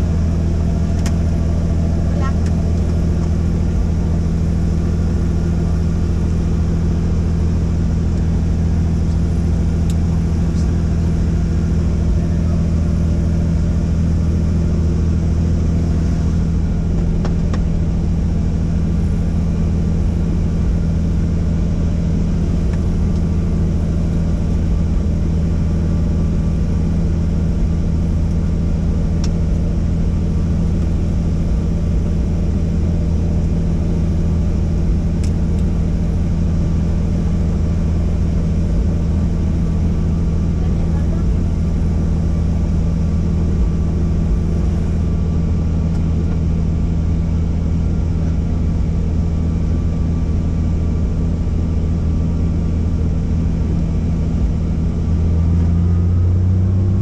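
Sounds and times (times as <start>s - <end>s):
helicopter engine and rotor: 0.0s - 55.2s.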